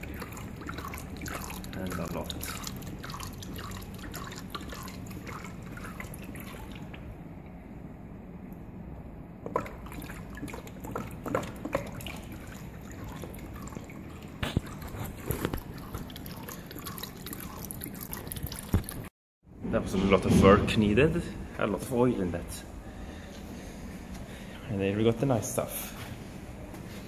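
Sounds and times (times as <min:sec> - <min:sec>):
oil trickling into bucket: 0:00.0 - 0:07.0, 0:09.4 - 0:19.1
drips and splashes: 0:00.0 - 0:07.1, 0:09.4 - 0:19.1.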